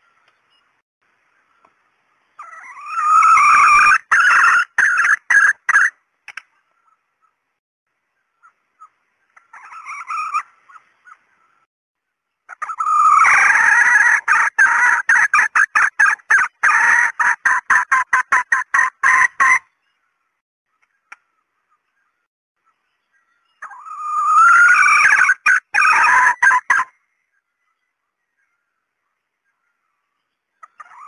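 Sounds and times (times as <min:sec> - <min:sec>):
junglefowl cackling calls: 0:02.4 - 0:06.0, 0:08.4 - 0:11.4, 0:12.5 - 0:19.7, 0:23.6 - 0:27.0, 0:30.6 - 0:31.0.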